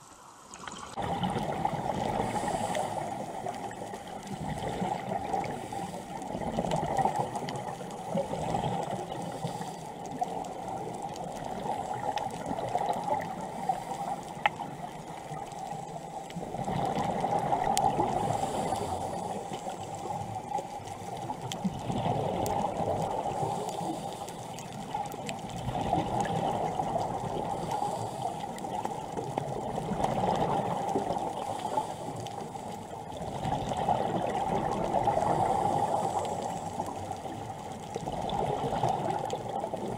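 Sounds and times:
underwater rushing hiss: 0.0s - 21.2s, 22.0s - 25.2s, 25.8s - 37.5s
faint clicks: 2.7s - 18.0s, 18.6s - 32.9s.

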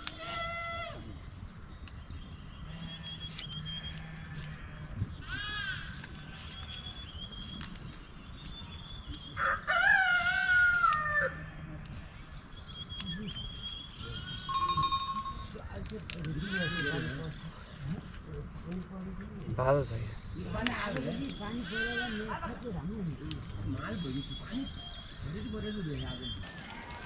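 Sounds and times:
rooster crowing: 9.4s - 11.4s.

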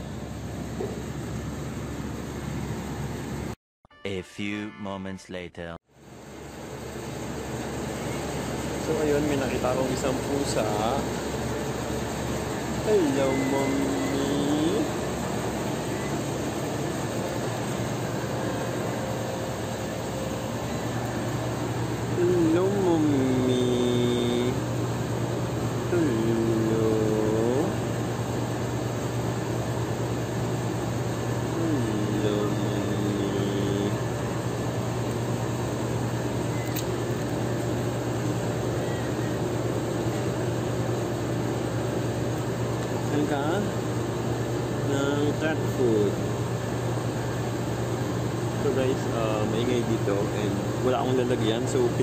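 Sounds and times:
loud mechanical drone: 6.1s - 46.8s.

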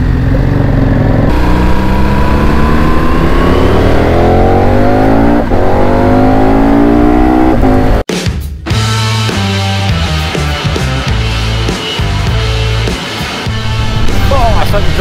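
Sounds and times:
motorcycle engine accelerating: 0.0s - 8.0s
wind and road noise: 0.0s - 8.0s, 13.5s - 15.0s.

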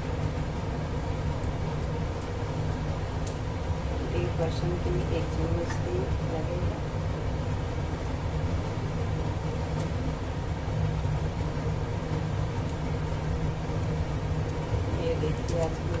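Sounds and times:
low rumbling noise: 0.0s - 16.0s.

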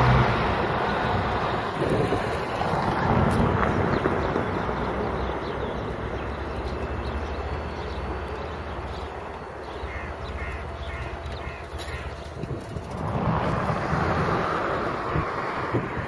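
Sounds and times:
crow cawing: 9.9s - 12.2s.

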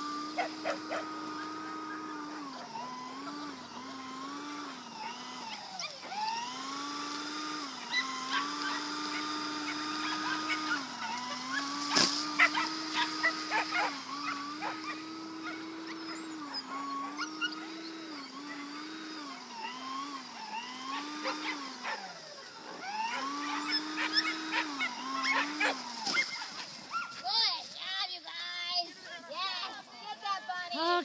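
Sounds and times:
electric motor whining: 0.0s - 27.0s
dogs barking: 0.4s - 3.6s, 5.0s - 6.2s, 7.8s - 18.7s, 20.8s - 27.2s.

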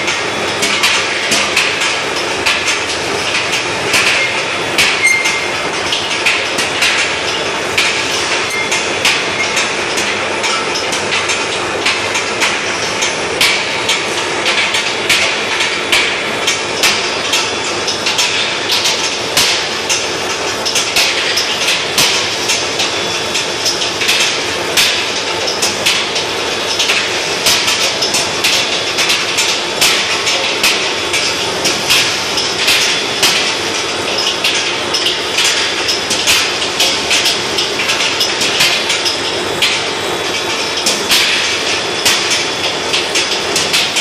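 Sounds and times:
rolling mill machine noise: 0.0s - 44.0s
sharp metallic clanks and rattles: 0.0s - 44.0s.

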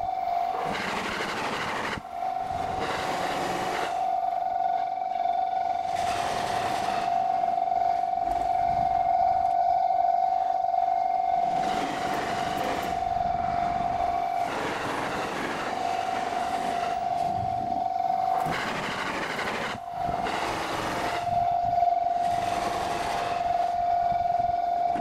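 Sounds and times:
level crossing warning bell: 0.0s - 25.0s
passing trains rumbling: 10.1s - 25.0s.

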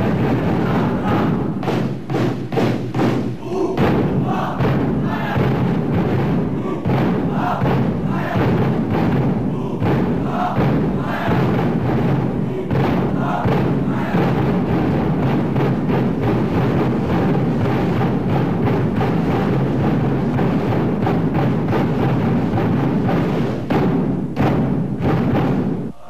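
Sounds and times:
crowd cheering: 0.0s - 1.6s, 3.4s - 5.5s, 6.5s - 8.6s, 9.5s - 15.6s
bass drums beating: 0.0s - 25.9s.

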